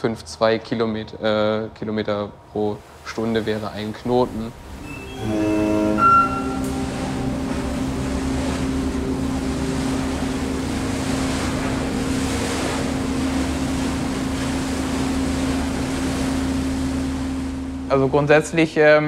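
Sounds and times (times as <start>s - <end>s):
waves breaking: 2.7s - 18.6s
boat engine humming: 2.9s - 19.0s
brief tone: 4.8s - 8.6s.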